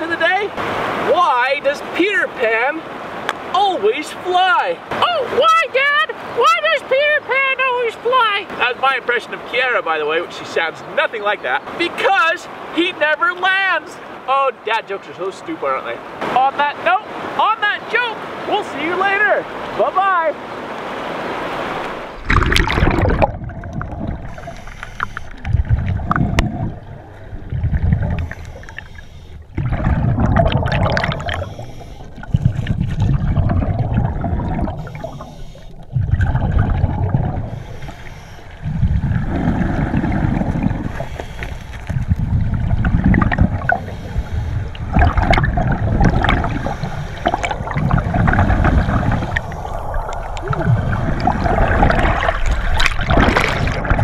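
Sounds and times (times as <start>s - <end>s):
gurgling river water: 0.0s - 54.0s
exhaled bubbles rumbling: 22.0s - 54.0s
diver breathing through regulator: 24.1s - 25.5s, 28.0s - 33.0s, 34.4s - 36.1s, 37.1s - 42.5s, 43.4s - 45.3s, 46.1s - 51.3s.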